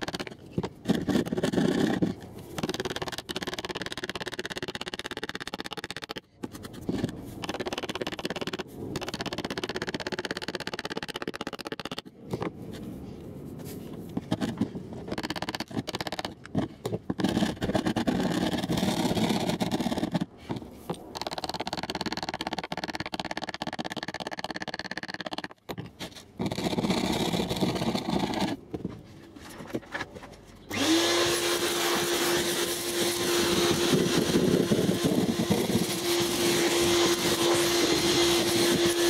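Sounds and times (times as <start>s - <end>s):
metal scraper scraping grit: 0.0s - 5.4s, 31.0s - 39.0s.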